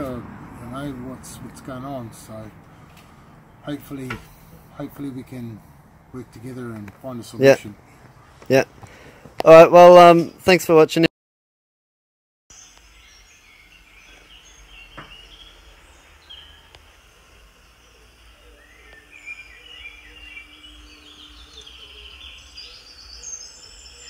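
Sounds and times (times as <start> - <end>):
birds chirping and calling: 12.5 - 24.0.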